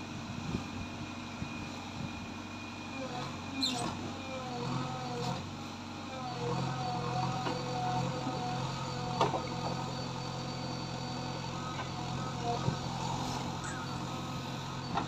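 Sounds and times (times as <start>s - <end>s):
diesel engine working under load: 0.0s - 15.0s
hydraulic whine: 0.2s - 15.0s.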